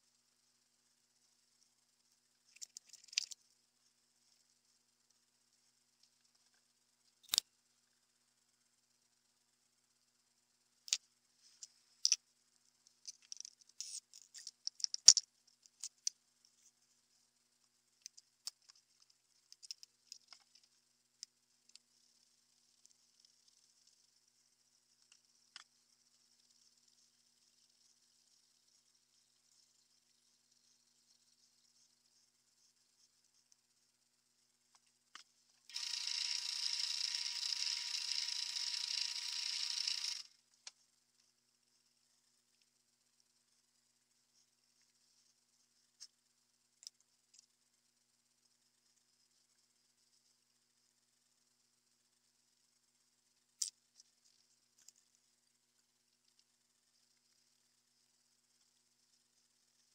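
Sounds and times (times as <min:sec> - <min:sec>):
metal parts clicking on stone: 0:02.5 - 0:03.4, 0:12.9 - 0:16.1.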